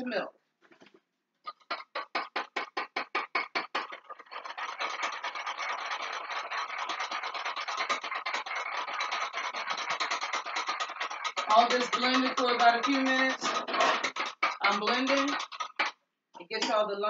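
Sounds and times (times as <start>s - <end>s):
scratchy rubbing: 1.5s - 16.0s
whisking slurry by hand: 3.2s - 15.9s.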